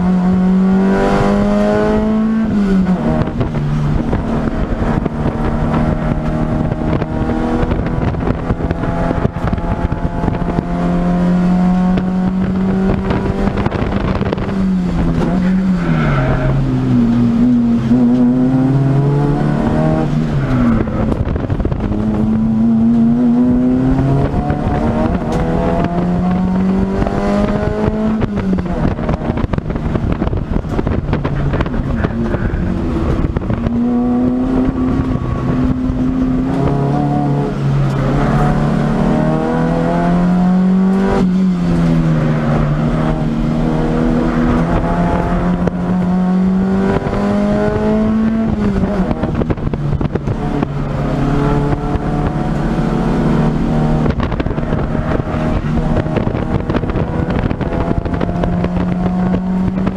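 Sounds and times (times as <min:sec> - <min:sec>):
race car engine revving: 0:00.0 - 0:59.9.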